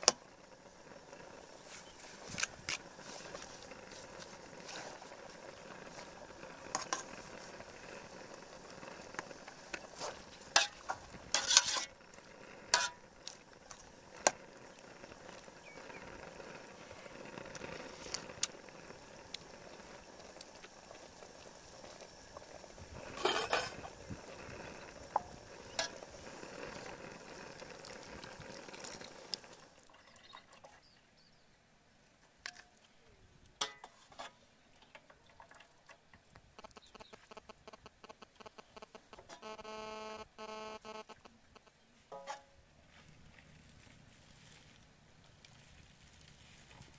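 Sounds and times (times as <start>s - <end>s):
soup bubbling in a pot: 0.0s - 31.1s, 33.6s - 39.7s.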